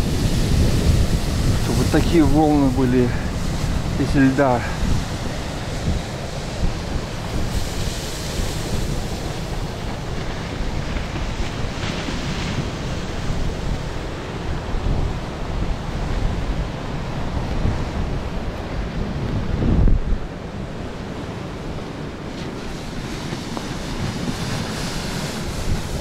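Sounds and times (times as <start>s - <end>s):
sea surf rushing: 0.0s - 26.0s
wind buffeting microphone: 0.0s - 26.0s.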